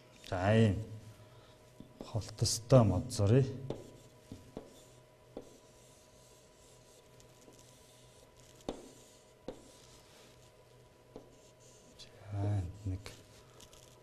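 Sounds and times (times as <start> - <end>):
faint steady hum: 0.0 - 14.0
chalk tapping on board: 3.7 - 5.8, 8.4 - 9.9, 11.1 - 11.6
chalk scratching on chalkboard: 3.7 - 12.0.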